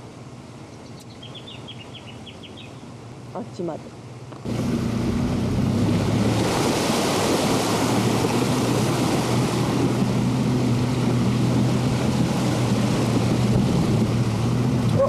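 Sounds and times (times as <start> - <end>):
engine running low hum: 0.0 - 15.0
river water rushing and splashing: 4.4 - 15.0.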